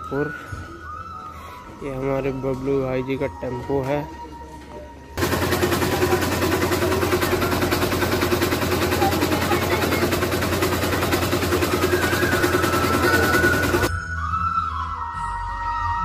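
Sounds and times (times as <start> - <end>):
rickshaw engine idling clatter: 5.2 - 13.9.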